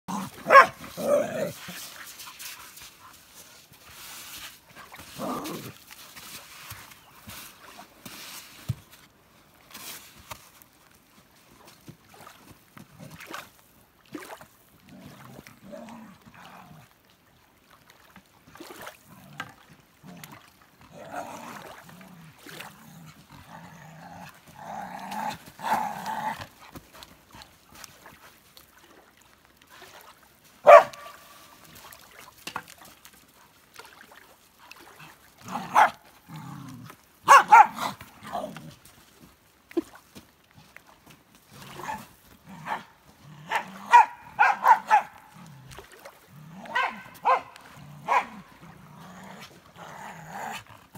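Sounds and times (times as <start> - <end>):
dog barking: 0.5 - 0.8, 30.6 - 31.2, 35.7 - 36.0, 37.3 - 37.9, 43.5 - 45.2, 46.7 - 48.3.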